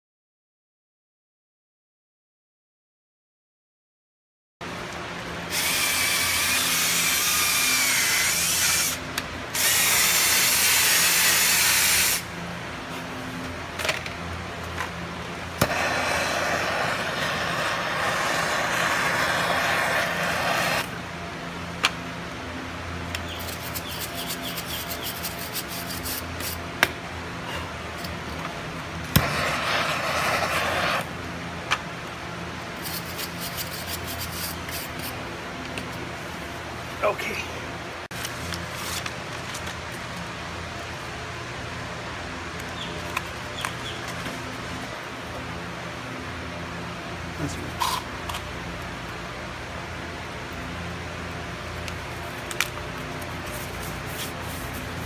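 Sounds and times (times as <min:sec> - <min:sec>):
steady low hum: 0:04.6 - 0:55.0
gas torch hissing: 0:05.5 - 0:12.3, 0:15.5 - 0:21.0, 0:29.0 - 0:31.1.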